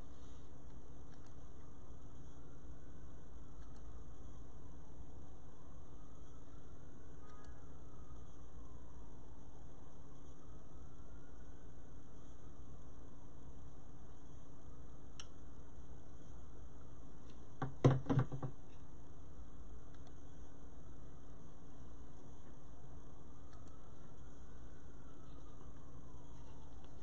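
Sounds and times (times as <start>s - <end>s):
electrical hum with hiss: 0.0s - 27.0s.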